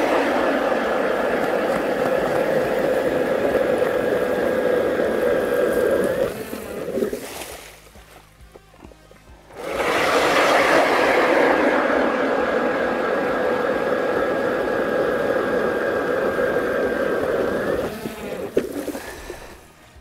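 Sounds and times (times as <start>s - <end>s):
auger bit cutting ice: 0.0s - 7.7s, 13.3s - 19.8s
electric ice auger whining: 0.0s - 7.7s, 9.5s - 20.0s.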